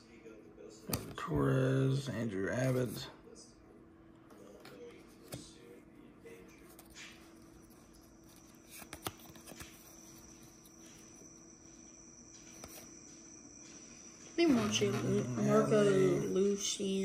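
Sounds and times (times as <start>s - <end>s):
faint high whine: 0.0s - 17.0s
trading cards clicking and sliding: 6.8s - 11.0s.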